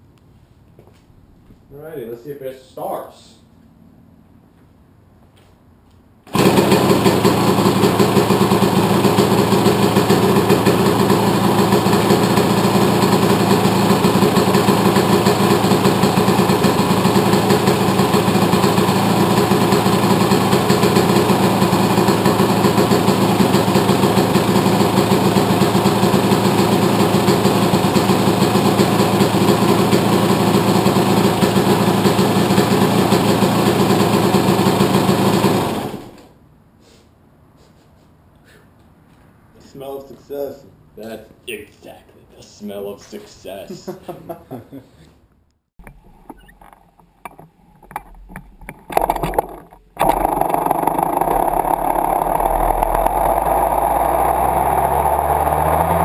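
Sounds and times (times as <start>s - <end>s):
two-stroke dirt bike engine idling: 6.4s - 36.2s, 48.9s - 56.0s.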